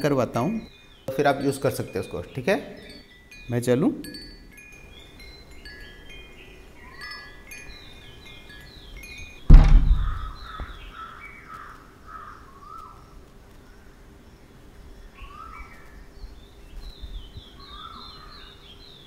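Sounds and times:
deep boom: 9.5 - 10.5.

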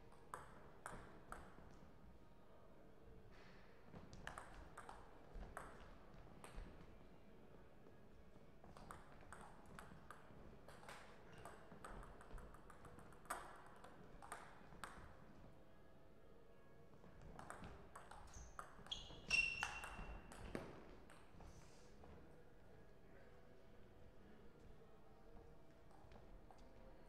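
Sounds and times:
short high squeaks: 18.3 - 20.1.

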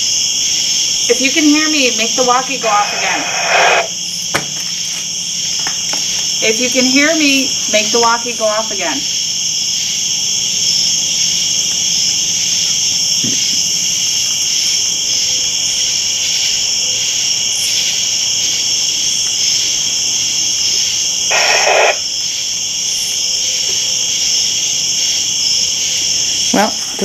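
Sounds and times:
crickets chirping: 0.0 - 27.0
walkie-talkie static: 1.1 - 3.9, 21.3 - 22.1.

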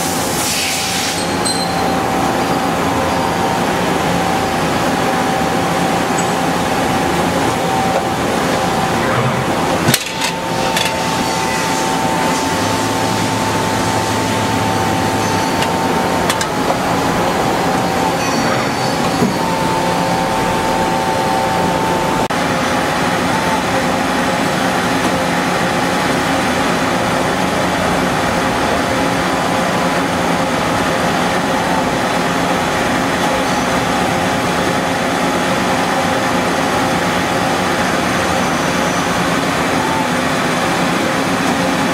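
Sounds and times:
machine hiss with whine: 0.0 - 27.3.

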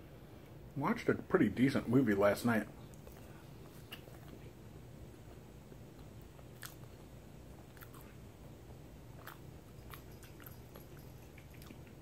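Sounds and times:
person chewing: 2.8 - 4.6, 5.2 - 12.0
mouth clicks: 9.2 - 12.0.

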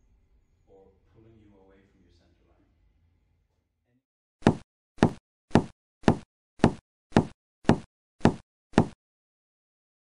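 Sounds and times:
sharp short knocks: 4.4 - 9.0.

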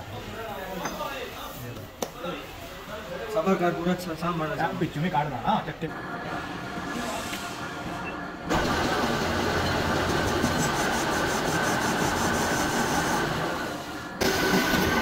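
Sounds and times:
metal lathe running: 4.4 - 15.0.

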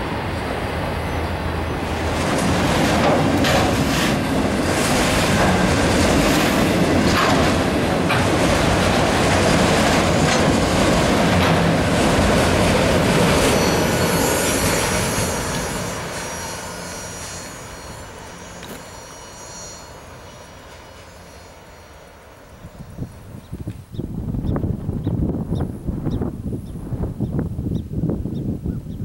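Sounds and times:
freight train rolling past: 0.0 - 27.2
steel wheels clicking on rail: 2.1 - 20.2.

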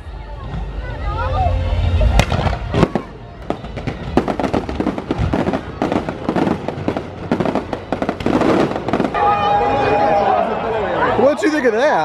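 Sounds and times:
fireworks bang: 2.0 - 9.8
fireworks popping and crackling: 2.2 - 9.3.

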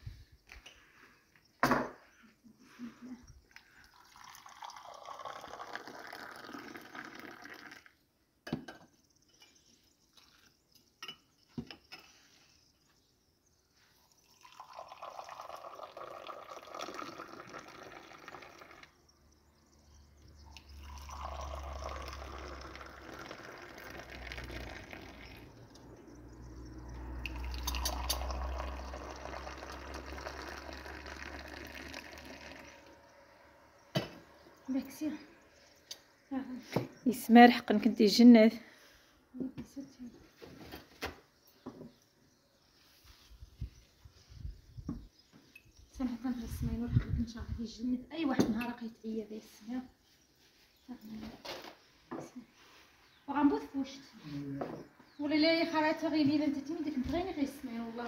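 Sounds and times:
tea pouring into glasses: 3.4 - 8.0, 14.0 - 19.3, 20.0 - 34.7.

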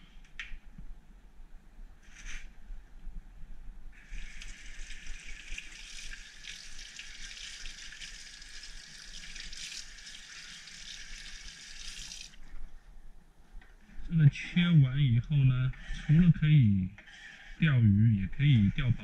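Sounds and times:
water running from tap: 4.0 - 12.4.

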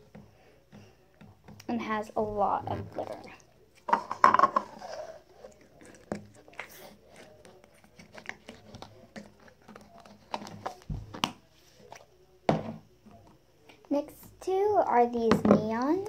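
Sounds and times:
slime squelching: 0.8 - 12.2.

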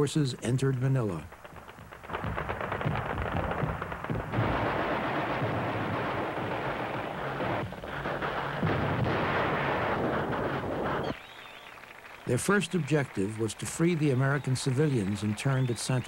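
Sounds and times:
automatic weapon fire: 1.3 - 11.2
rifle shots: 1.3 - 11.2.

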